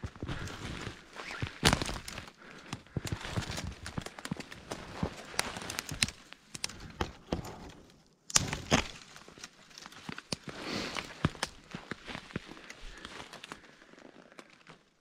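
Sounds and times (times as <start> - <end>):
footsteps crunching in snow: 0.0 - 6.2
twigs crackling: 0.0 - 15.0.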